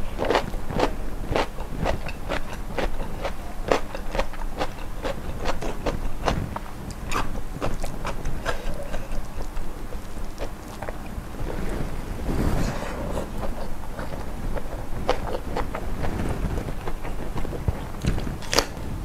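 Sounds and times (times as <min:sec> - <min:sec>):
person chewing crunchy food: 0:00.0 - 0:11.8, 0:12.9 - 0:18.8.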